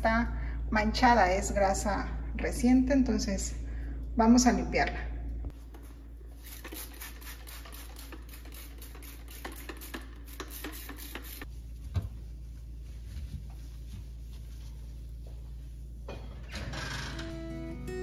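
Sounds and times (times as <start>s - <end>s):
spray bottle hissing sprays: 6.3s - 11.5s.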